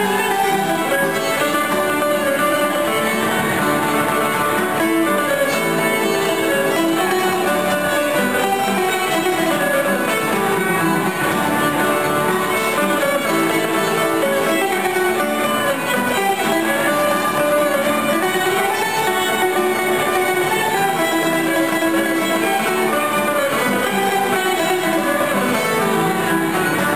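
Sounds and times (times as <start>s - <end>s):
fiddles playing a tune: 0.0s - 26.9s
strummed acoustic guitar: 0.0s - 26.9s.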